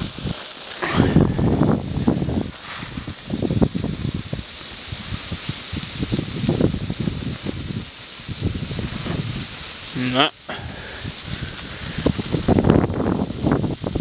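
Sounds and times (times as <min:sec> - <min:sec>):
sparklers fizzing: 0:00.0 - 0:14.0
low rumbling: 0:00.8 - 0:09.7.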